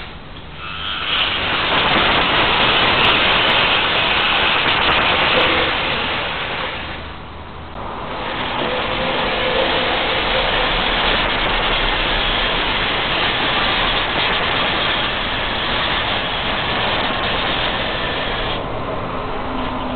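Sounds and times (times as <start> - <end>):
model train motor and wheels: 0.0 - 19.9.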